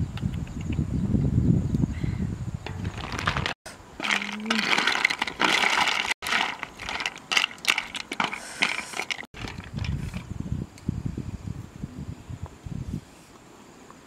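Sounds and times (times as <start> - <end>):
snail shells clattering in a wok: 2.7 - 10.2.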